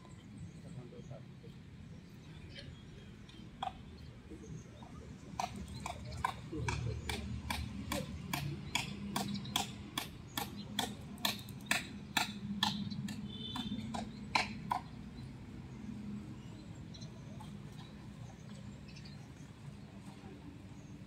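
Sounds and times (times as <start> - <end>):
low background murmur: 0.0 - 21.0
hammer striking wood: 5.4 - 14.9.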